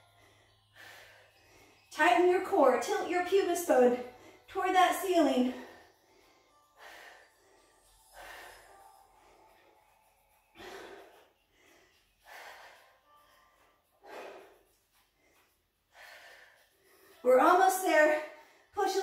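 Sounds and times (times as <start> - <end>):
woman breathing hard: 0.0 - 1.9, 5.5 - 17.2.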